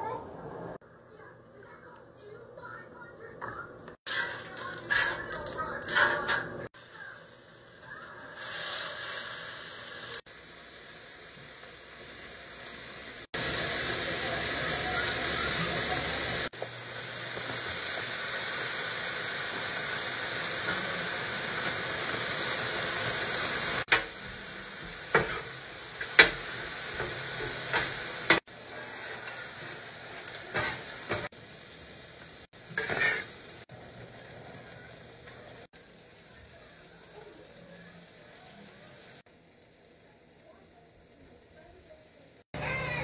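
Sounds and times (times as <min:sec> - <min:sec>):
metal spatula scraping griddle: 0:04.1 - 0:06.7, 0:24.8 - 0:31.3, 0:32.7 - 0:33.4
food sizzling on a griddle: 0:04.1 - 0:43.0.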